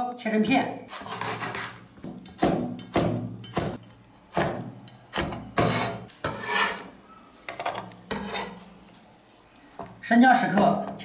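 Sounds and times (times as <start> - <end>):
blade scraping on cutting board: 0.9 - 1.8, 5.2 - 7.0, 8.1 - 8.7.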